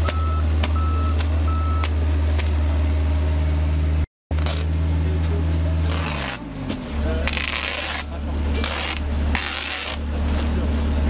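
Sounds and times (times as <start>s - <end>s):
reversing alarm beeping: 0.0s - 1.9s
construction machine engine humming: 0.0s - 11.0s.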